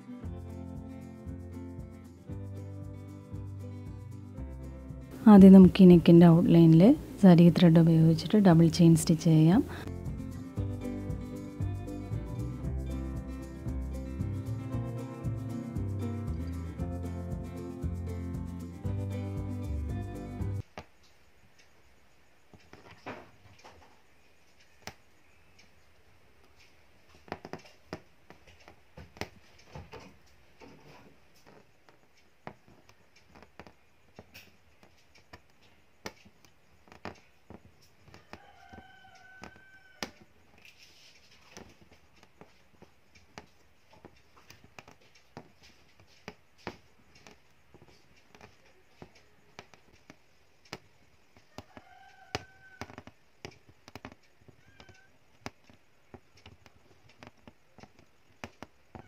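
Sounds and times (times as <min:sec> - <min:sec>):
hook needle ticking through fabric: 0:26.4 - 0:40.7, 0:41.4 - 0:59.0.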